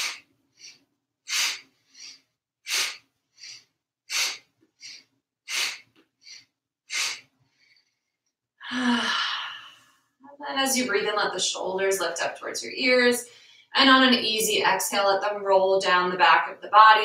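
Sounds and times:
woman breathing forcefully: 0.0s - 8.0s, 8.6s - 10.0s
woman exhaling with voice: 8.6s - 9.9s.

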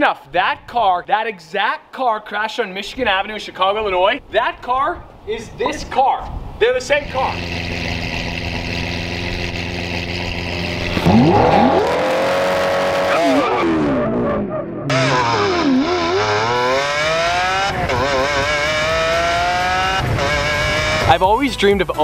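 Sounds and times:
car engine revving and accelerating: 7.1s - 21.2s.

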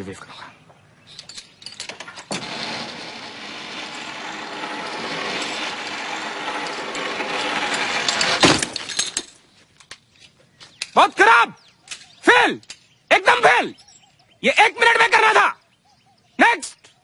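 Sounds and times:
pulley rattling whir on rope: 1.2s - 9.4s.

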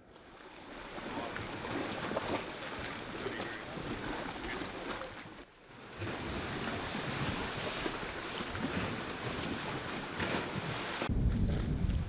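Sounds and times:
lake waves: 0.0s - 12.0s
wind buffeting microphone: 8.6s - 12.0s.

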